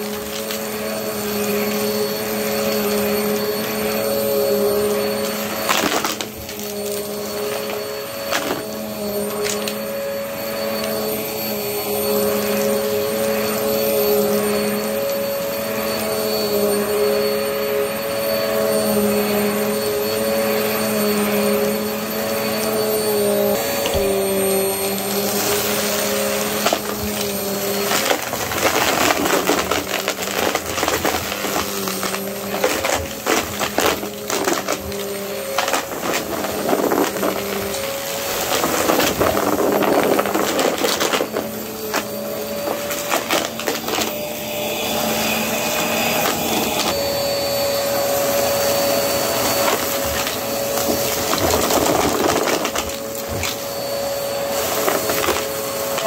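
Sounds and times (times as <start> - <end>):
vacuum cleaner running: 0.0 - 56.0
debris crackling and rattling: 25.1 - 44.1, 49.4 - 53.6.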